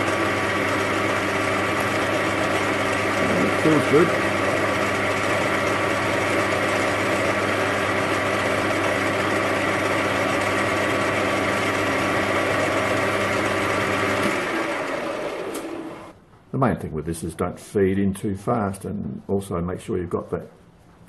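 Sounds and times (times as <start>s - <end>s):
lathe running down: 0.0s - 16.2s
metal lathe whirring: 0.0s - 16.2s.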